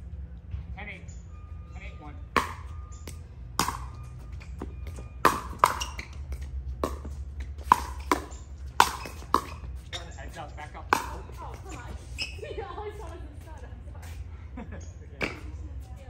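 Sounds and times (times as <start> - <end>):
paddles hitting plastic ball: 2.4 - 9.8, 10.9 - 11.8.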